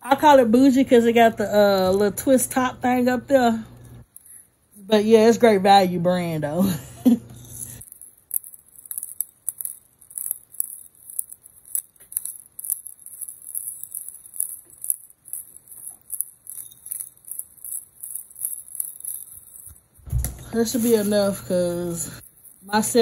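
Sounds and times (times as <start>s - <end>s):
pepper grinder crunching clicks: 7.4s - 22.9s.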